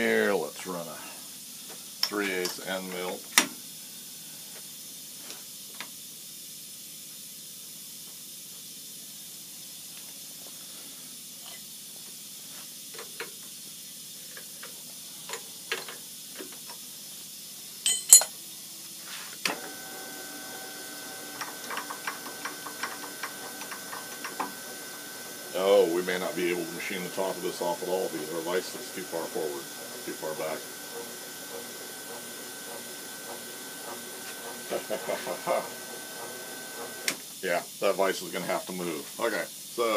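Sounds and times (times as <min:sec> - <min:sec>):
milling machine hum: 0:19.5 - 0:37.3.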